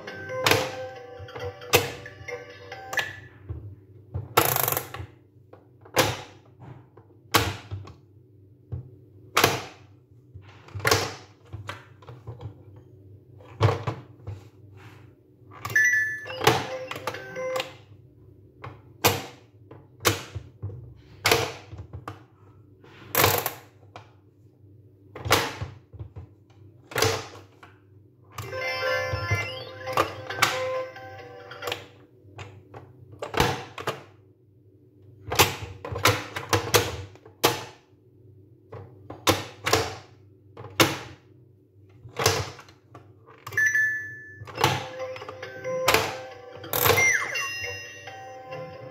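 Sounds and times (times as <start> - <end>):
plastic toy clacks and thunks: 9.3 - 12.6, 25.1 - 27.7, 35.3 - 37.8, 38.7 - 41.2
electronic toy tone: 28.4 - 31.7, 43.5 - 48.9.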